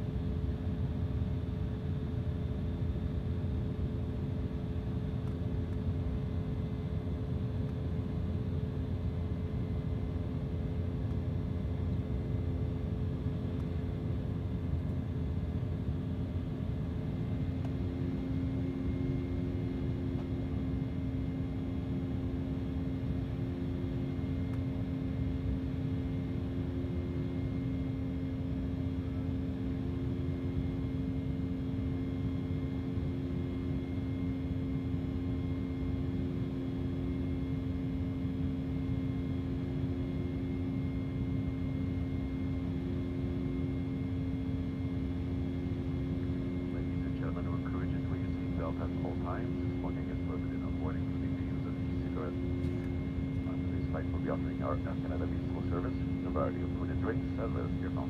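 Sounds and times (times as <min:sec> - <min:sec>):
jet engine cabin drone: 0:00.0 - 0:58.0
higher engine tone: 0:44.4 - 0:58.0.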